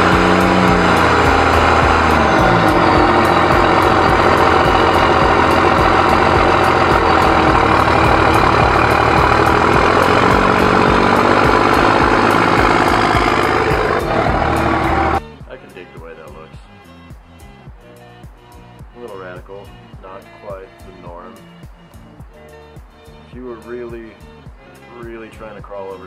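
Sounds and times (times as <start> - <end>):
diesel engine idling: 0.0 - 15.2.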